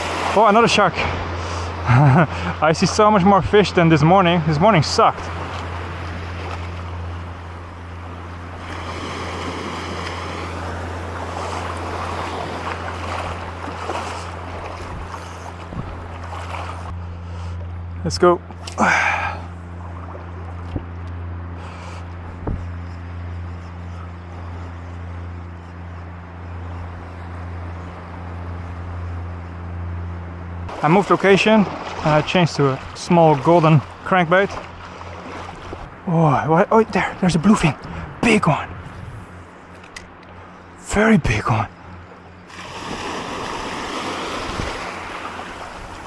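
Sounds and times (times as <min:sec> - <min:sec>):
waves washing over reef: 0:00.0 - 0:16.9, 0:30.7 - 0:38.6, 0:42.5 - 0:46.0
low engine-like drone: 0:00.0 - 0:46.0
wind: 0:00.0 - 0:46.0
wind on microphone: 0:14.7 - 0:16.1, 0:42.8 - 0:45.0.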